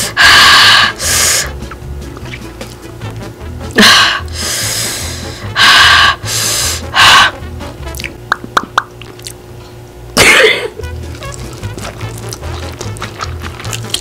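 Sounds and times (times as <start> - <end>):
person panting hard: 0.0 - 1.6, 3.8 - 7.5
background music with steady beat: 0.0 - 9.0
wet mouth clicks: 7.8 - 9.4, 11.0 - 14.0.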